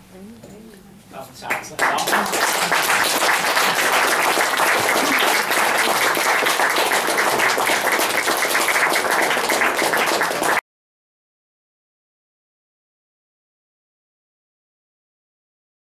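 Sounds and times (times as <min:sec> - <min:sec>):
audience applauding: 0:01.5 - 0:10.6.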